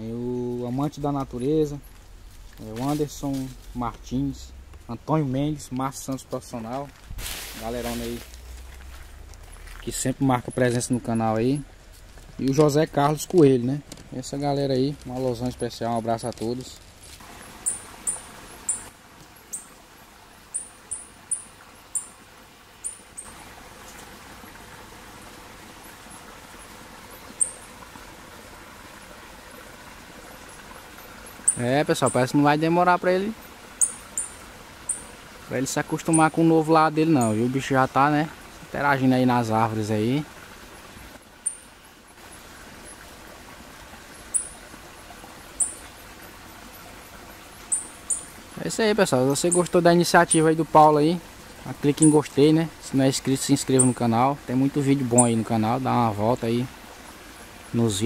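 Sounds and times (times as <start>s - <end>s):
high squeaky animal chirps: 17.6s - 18.9s, 20.5s - 22.1s, 47.7s - 48.4s
animal high-pitched chirps: 47.7s - 48.3s.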